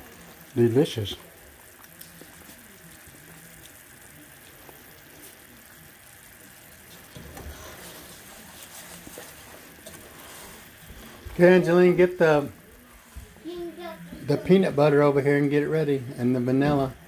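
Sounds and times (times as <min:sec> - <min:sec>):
mixture bubbling in a saucepan: 0:00.0 - 0:17.0.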